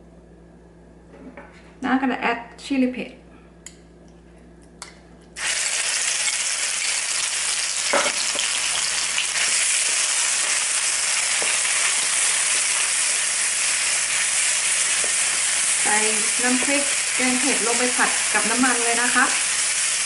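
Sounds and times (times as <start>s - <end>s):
paste sizzling in hot oil: 5.4s - 20.0s.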